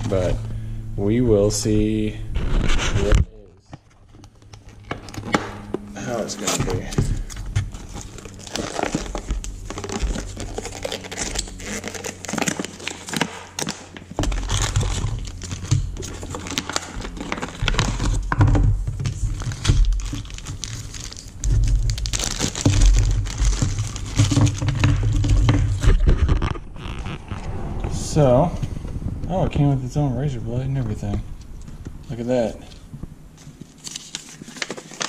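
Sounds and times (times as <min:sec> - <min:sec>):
bumps and rumble of handling: 0:00.0 - 0:35.0
plastic and paper crinkling: 0:03.8 - 0:27.0, 0:33.4 - 0:35.0
packaging tearing: 0:04.4 - 0:18.4, 0:19.1 - 0:27.1, 0:33.4 - 0:35.0.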